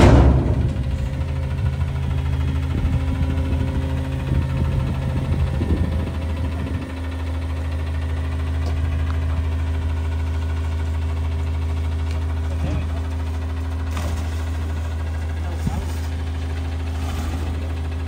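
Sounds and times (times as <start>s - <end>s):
garbage truck diesel engine idling: 0.0s - 18.0s.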